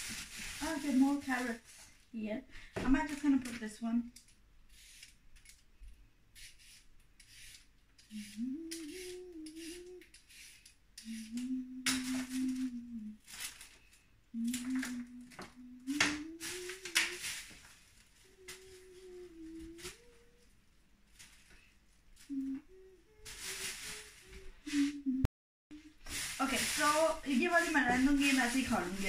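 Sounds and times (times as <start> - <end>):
peeler scraping a carrot: 4.7 - 5.6, 6.4 - 12.0
woman humming a tune: 8.1 - 10.2, 11.0 - 13.2, 14.3 - 17.3, 18.2 - 20.6, 22.3 - 26.0.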